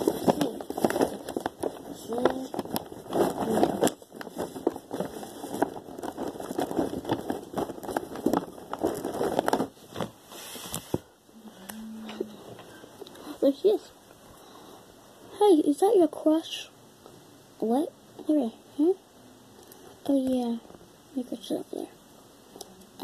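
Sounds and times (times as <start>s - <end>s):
rustling near microphone: 0.0s - 11.2s.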